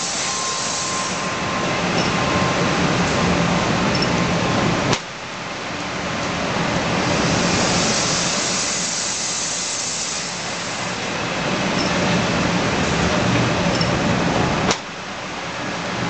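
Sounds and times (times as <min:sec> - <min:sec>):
train rushing hiss: 0:00.0 - 0:03.9, 0:06.9 - 0:11.4
low train rumble: 0:00.0 - 0:16.0
sharp click: 0:13.7 - 0:14.0.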